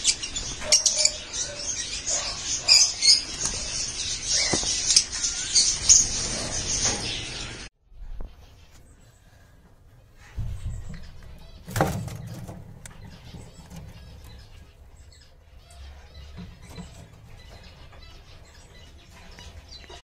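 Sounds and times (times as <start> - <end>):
low rumbling handling noise: 10.2 - 19.8.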